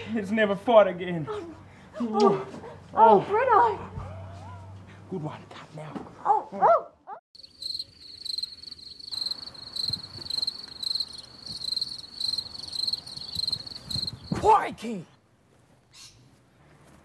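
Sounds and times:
crickets chirping: 7.4s - 14.4s.

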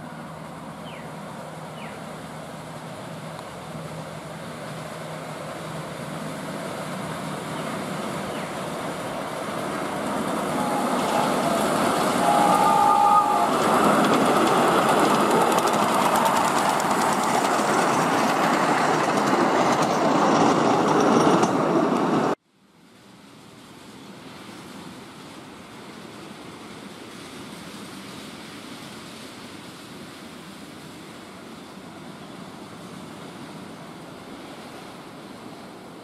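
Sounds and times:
miniature steam train passing: 0.0s - 36.0s
brief high tone: 10.4s - 14.1s.

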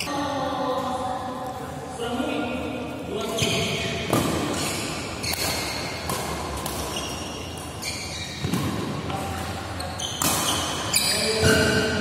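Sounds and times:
shoes squeaking on court floor: 3.1s - 12.0s
racket hitting shuttlecock: 3.2s - 12.0s.

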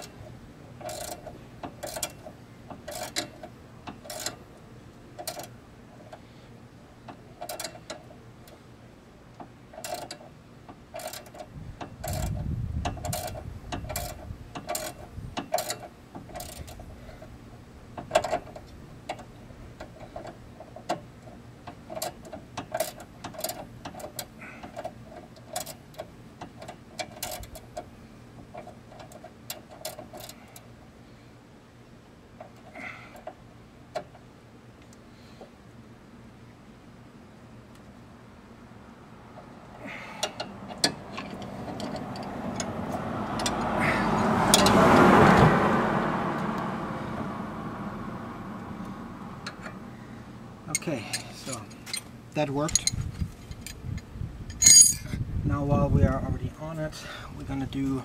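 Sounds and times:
hand ratchet clicking: 0.8s - 2.2s, 2.8s - 4.4s, 5.2s - 5.5s, 11.0s - 16.8s.

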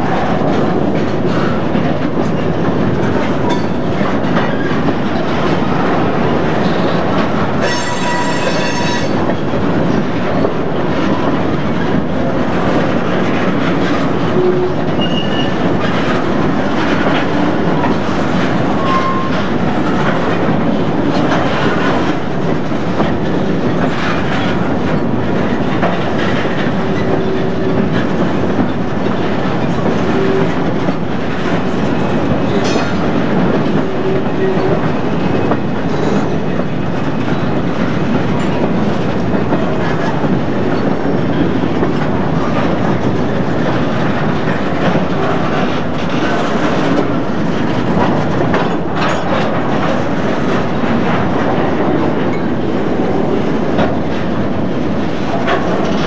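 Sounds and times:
train wheels on rails: 0.0s - 56.0s
high wheel squeal: 7.6s - 9.3s, 14.4s - 15.6s.

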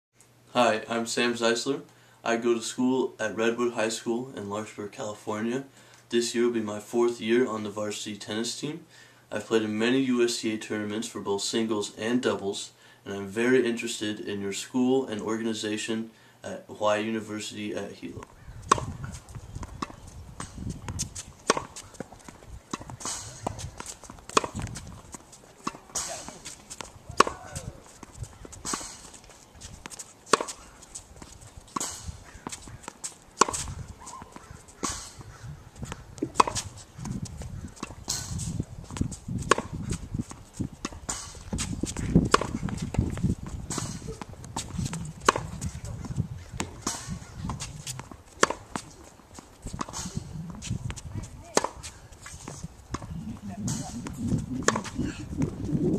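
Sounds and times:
tennis racket hitting ball: 18.2s - 55.9s
ball bouncing on hard court: 18.6s - 28.1s, 35.8s - 37.2s, 40.9s - 48.9s, 52.5s - 55.9s
tennis ball hit off strings: 21.5s - 21.8s, 24.3s - 24.7s, 27.1s - 27.7s, 36.2s - 36.6s.

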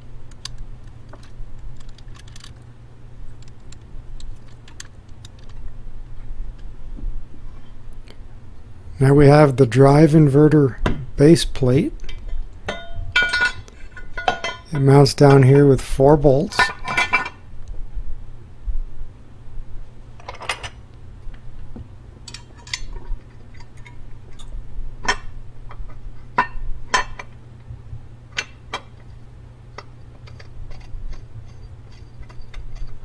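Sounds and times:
steady low hum: 0.0s - 33.0s
metallic clinks and taps: 12.7s - 14.9s.

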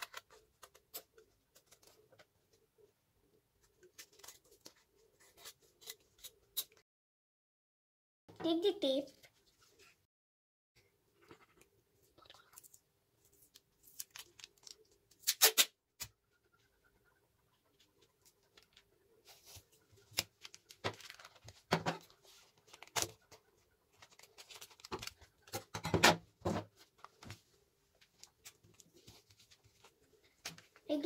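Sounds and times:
paper crackling: 18.5s - 25.5s.

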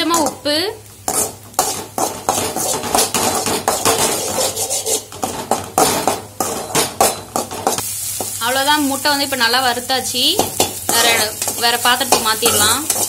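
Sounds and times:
metal spatula scraping a pan: 1.1s - 7.8s, 10.7s - 13.0s.

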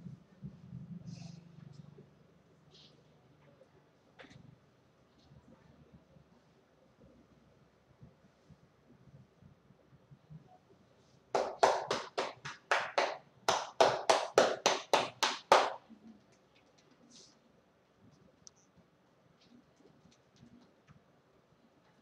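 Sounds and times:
hands slapping a back: 11.4s - 15.8s.

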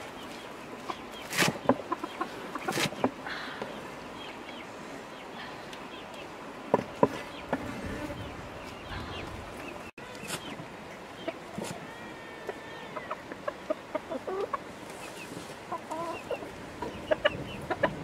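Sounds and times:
chickens clucking: 0.0s - 18.0s.

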